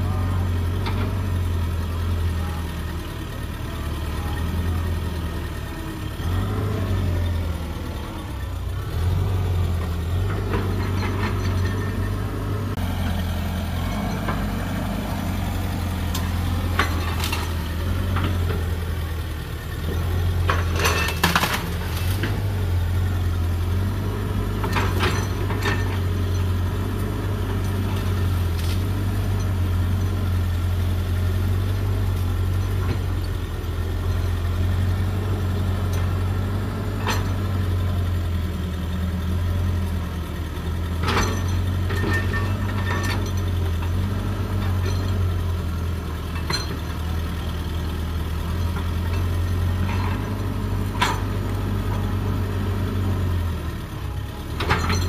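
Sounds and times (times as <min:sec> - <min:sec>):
excavator diesel engine running: 0:00.0 - 0:55.0.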